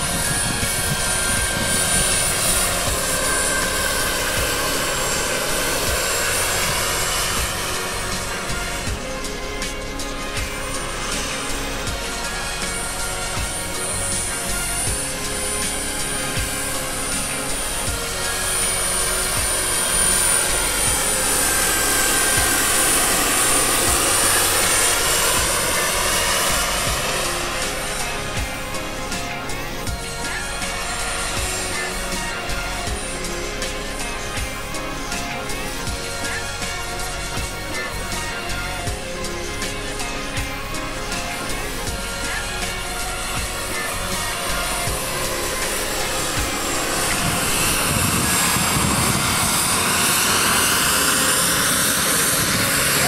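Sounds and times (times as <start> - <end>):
high thin whine: 0.0 - 53.0
model helicopter rotor and engine: 0.0 - 53.0.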